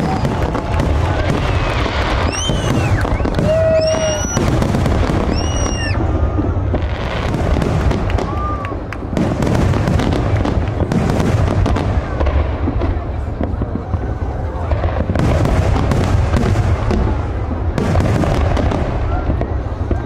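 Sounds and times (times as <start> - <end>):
high firework whistles: 0.0 - 8.9
firework shells booming: 0.0 - 20.0
fireworks cracking and crackling: 0.0 - 20.0.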